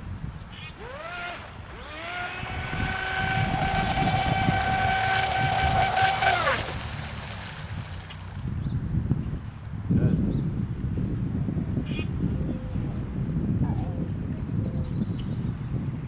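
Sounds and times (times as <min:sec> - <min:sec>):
electric boat motor whining: 0:00.5 - 0:08.5.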